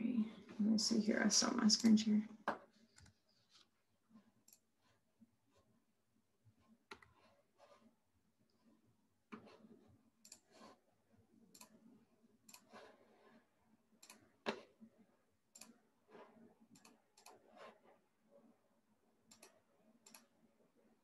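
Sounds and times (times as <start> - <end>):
mouse and keyboard clicking: 16.7 - 17.8.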